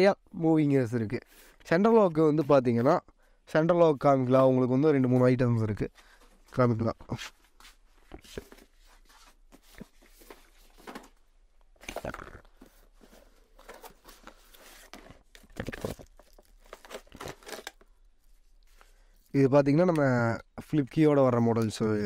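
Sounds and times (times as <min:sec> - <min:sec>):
cardboard and plastic packaging rustling: 0:05.2 - 0:19.0.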